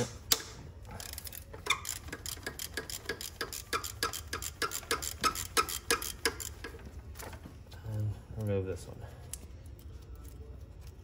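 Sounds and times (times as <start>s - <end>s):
socket ratchet clicking: 0.0s - 6.8s.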